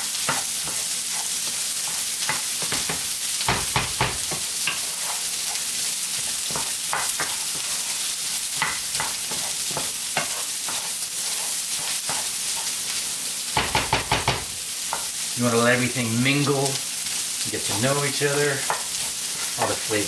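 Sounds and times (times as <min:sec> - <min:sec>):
vegetables sizzling in a frying pan: 0:00.0 - 0:20.0
spatula scraping and tapping pan: 0:00.1 - 0:15.2, 0:17.6 - 0:20.0.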